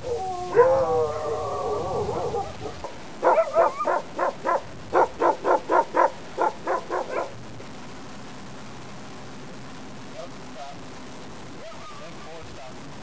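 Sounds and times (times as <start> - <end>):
dog barking sharply: 2.8 - 7.4.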